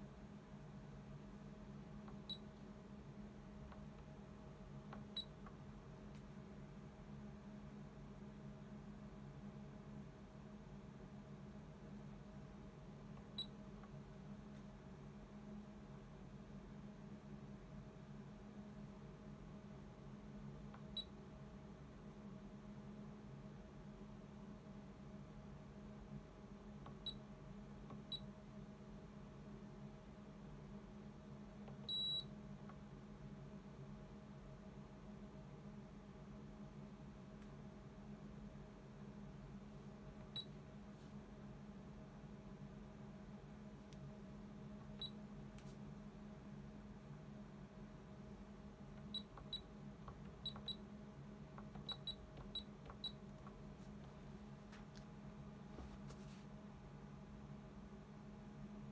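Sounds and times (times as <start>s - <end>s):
low steady hum: 0.0s - 58.9s
meter beeping: 31.9s - 32.3s, 49.0s - 50.8s, 51.6s - 53.2s
short high-pitched beeps: 51.8s - 53.2s.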